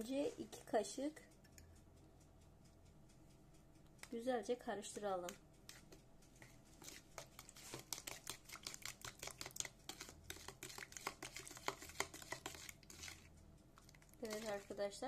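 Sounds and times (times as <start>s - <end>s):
utensil scraping a bowl: 5.3s - 15.0s.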